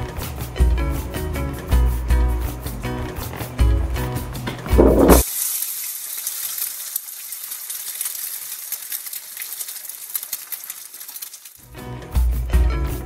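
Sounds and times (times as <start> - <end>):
egg sizzling in a skillet: 5.2 - 11.6.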